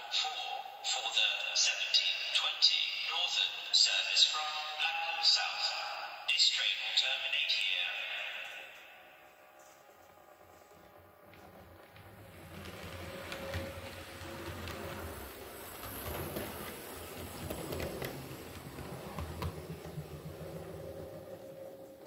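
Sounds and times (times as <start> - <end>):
wheels rumbling on rails: 9.7 - 22.0.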